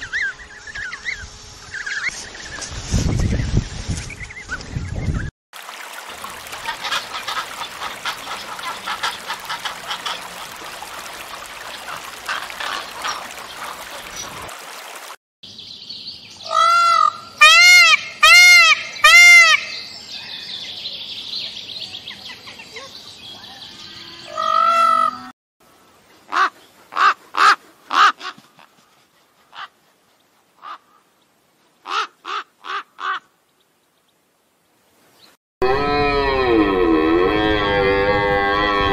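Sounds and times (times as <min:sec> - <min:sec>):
peacock calling: 0:16.4 - 0:20.3, 0:23.5 - 0:25.3
crow cawing: 0:16.5 - 0:19.7.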